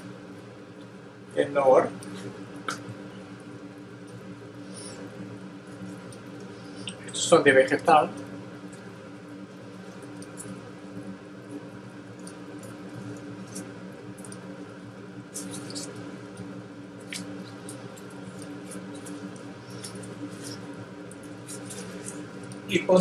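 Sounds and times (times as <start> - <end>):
steady low hum: 0.0 - 23.0
foil wrapper crinkling: 15.3 - 22.8.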